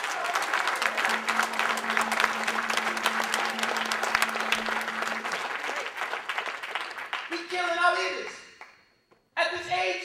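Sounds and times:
audience applauding: 0.0 - 8.0
steady low tone: 0.8 - 5.8.

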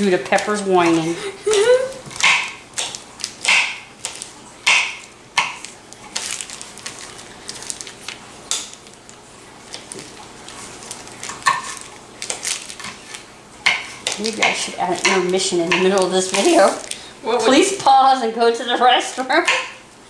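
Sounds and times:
knife chopping on cutting board: 2.2 - 3.8.

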